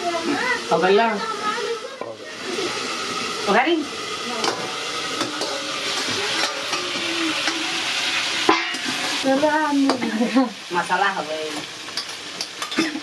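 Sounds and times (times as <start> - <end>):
food sizzling in hot oil: 0.0 - 13.0
metal spatula scraping a pan: 4.4 - 10.2.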